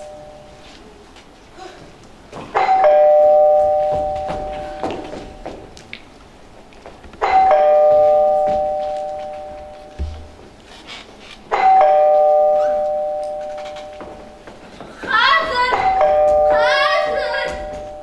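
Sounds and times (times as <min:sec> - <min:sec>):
two-tone doorbell chime: 0:02.6 - 0:05.0, 0:07.2 - 0:10.3, 0:11.6 - 0:14.1, 0:15.8 - 0:18.0.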